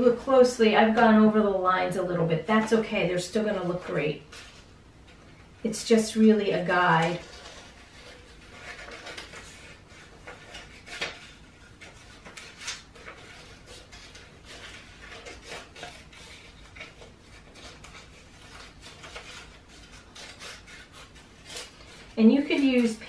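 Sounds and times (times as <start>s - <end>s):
paper rustling: 6.6s - 23.0s
scissors snipping paper: 6.9s - 23.0s.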